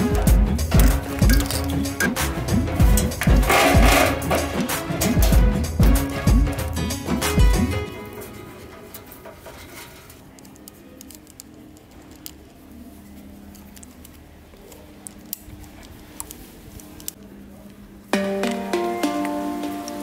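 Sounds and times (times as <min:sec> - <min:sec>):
clicks and rustles of handling wires: 0:00.7 - 0:02.0, 0:08.1 - 0:17.8.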